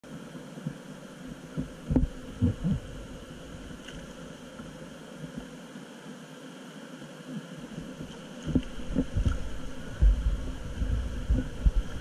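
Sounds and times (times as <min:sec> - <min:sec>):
river water rushing: 0:00.1 - 0:12.0
dull low thumps: 0:08.5 - 0:12.0.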